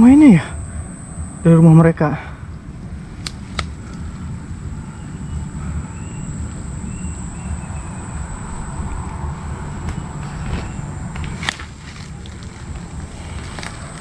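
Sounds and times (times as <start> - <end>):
high-pitched whine: 0.0 - 14.0
wind noise: 0.0 - 14.0
sharp clicks: 3.2 - 4.2.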